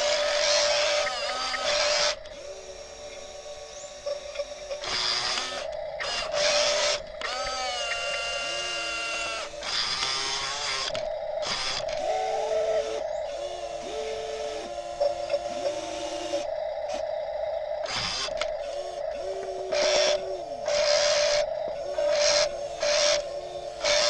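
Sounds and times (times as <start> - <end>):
electric motors whining: 0.0 - 24.0.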